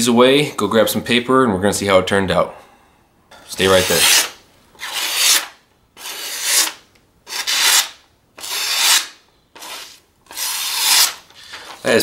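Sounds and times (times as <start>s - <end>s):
knife slicing through paper: 3.6s - 11.9s.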